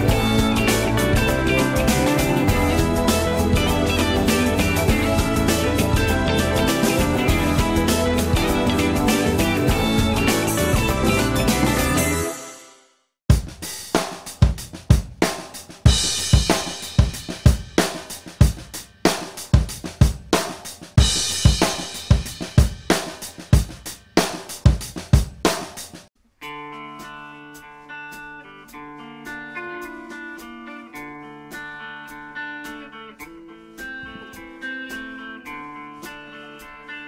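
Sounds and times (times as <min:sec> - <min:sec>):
drum kit beat: 0:00.0 - 0:12.2, 0:13.3 - 0:26.1, 0:26.9 - 0:37.0
held guitar notes ringing: 0:26.4 - 0:37.0.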